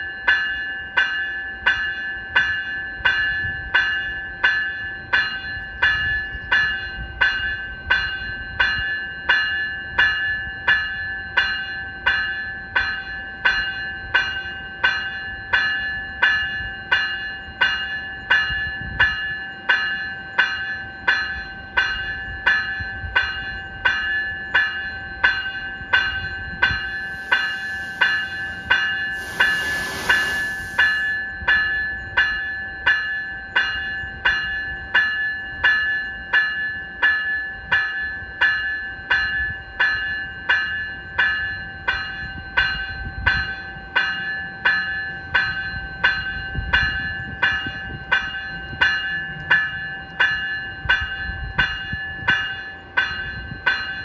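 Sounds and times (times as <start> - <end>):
electronic locomotive bell ringing: 0.0 - 54.0
hiss: 26.8 - 31.2.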